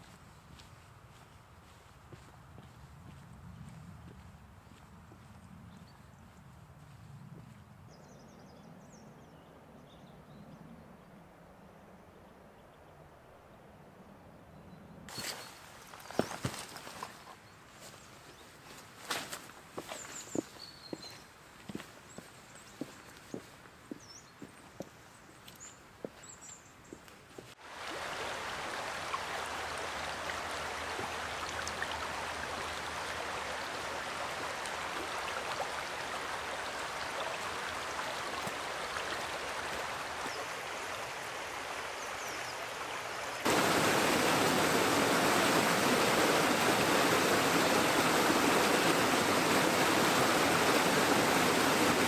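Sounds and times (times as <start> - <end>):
stream running over rocks: 15.1 - 17.2, 27.5 - 52.0
small waterfall pouring: 27.6 - 52.0.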